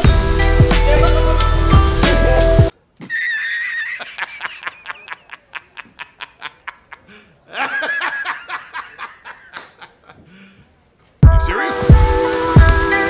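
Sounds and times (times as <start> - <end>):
man laughing heartily: 0.8 - 1.6, 3.0 - 10.6.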